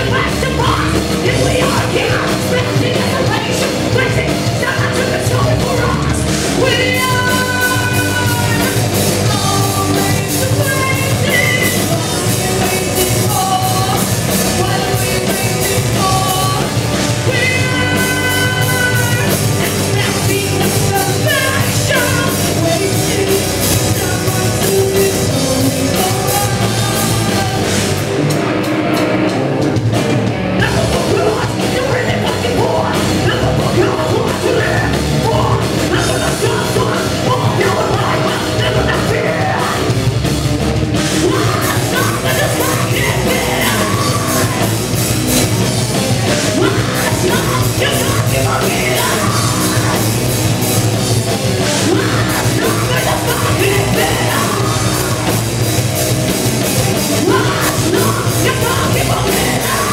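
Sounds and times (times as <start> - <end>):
woman singing and yelling: 0.0 - 27.8, 57.1 - 59.9
bass guitar: 0.0 - 59.9
distorted electric guitars: 0.0 - 59.9
drums and cymbals: 0.0 - 59.9.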